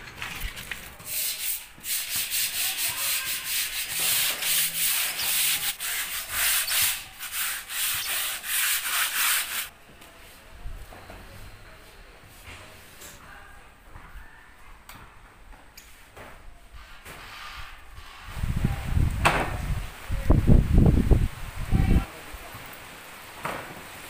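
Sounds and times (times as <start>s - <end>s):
sandpaper rubbing on steel: 1.0s - 9.7s.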